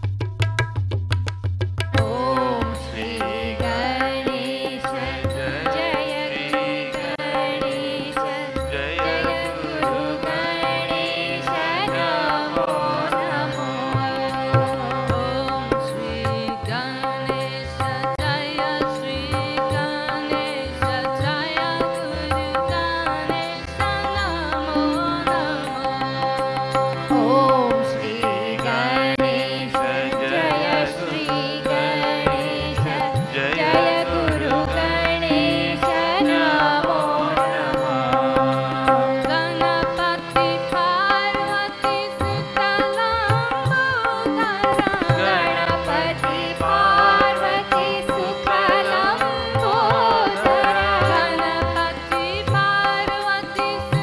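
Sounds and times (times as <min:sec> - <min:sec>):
hand drum: 0:00.0 - 0:02.7
person singing devotional song: 0:02.0 - 0:54.0.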